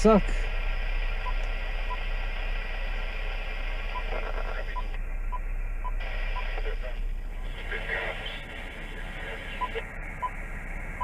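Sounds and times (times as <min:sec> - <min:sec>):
radio static hiss: 0:00.0 - 0:11.0
short radio beeps: 0:03.9 - 0:06.8, 0:09.5 - 0:10.4.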